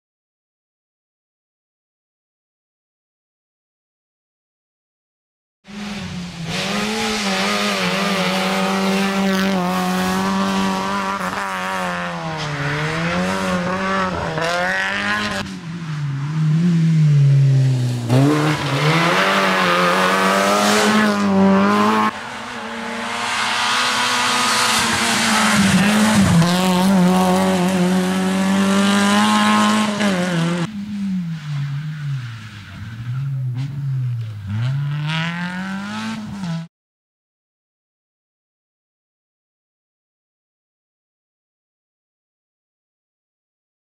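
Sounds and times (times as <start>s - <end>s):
rally car engine revving: 5.7s - 36.7s.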